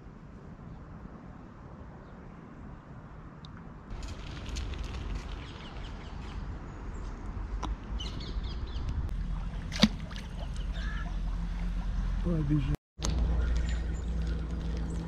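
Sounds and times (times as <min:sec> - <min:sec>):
fish splashing in water: 0:09.3 - 0:10.7
sharp loud splash: 0:09.6 - 0:10.5.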